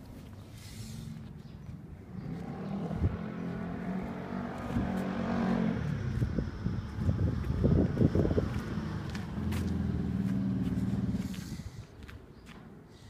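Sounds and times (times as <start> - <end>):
vehicle engine running: 1.9 - 11.6.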